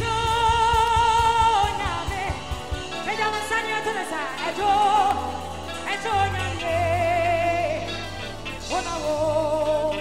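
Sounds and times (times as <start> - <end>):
woman singing with vibrato: 0.0 - 10.0
worship band playing: 0.0 - 10.0.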